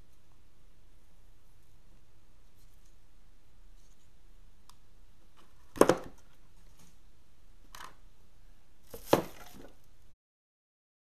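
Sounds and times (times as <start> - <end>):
handling noise at workbench: 5.4 - 7.0, 8.9 - 9.8.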